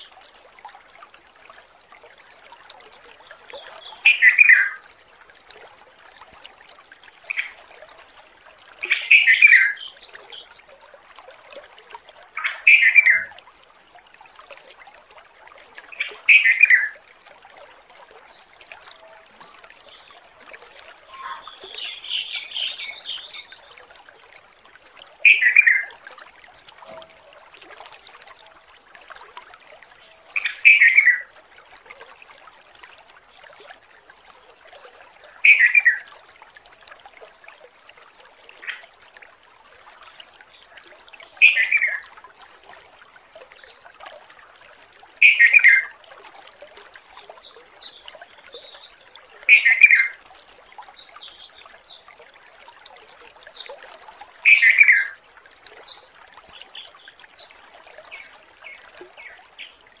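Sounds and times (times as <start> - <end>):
bird calling falling phrase: 21.1 - 22.5.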